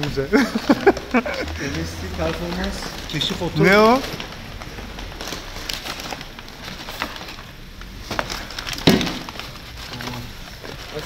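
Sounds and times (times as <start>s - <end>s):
packing paper rustling: 0.0s - 11.0s.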